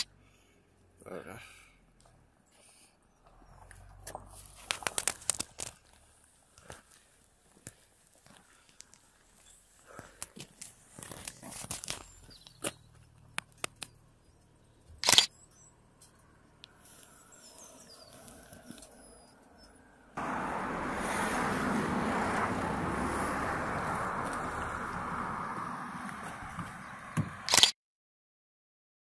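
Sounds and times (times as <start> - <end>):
motorcycle wind and road noise: 20.2 - 27.5.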